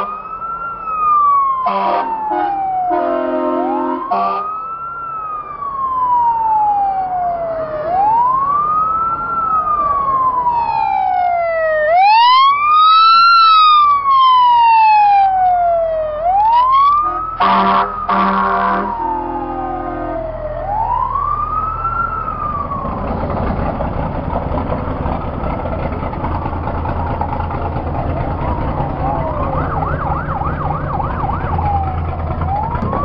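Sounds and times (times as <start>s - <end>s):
fire engine horn blasts: 0.0s - 0.3s, 1.6s - 4.6s, 16.5s - 20.4s
fire engine siren wailing: 0.0s - 33.0s.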